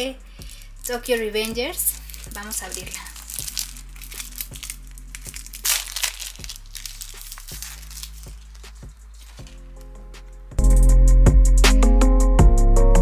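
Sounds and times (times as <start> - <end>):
plastic wrapper crinkling: 0.4 - 10.4.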